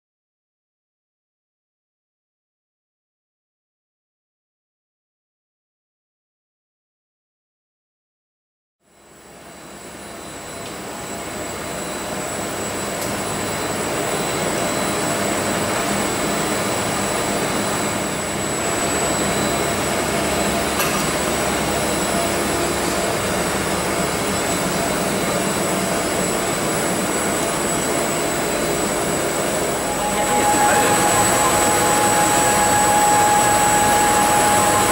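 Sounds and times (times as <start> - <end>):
printer whirring with high whine: 9.2 - 34.9.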